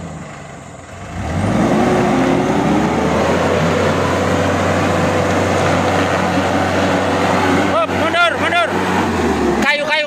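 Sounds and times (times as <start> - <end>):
truck diesel engine revving: 0.0 - 10.0.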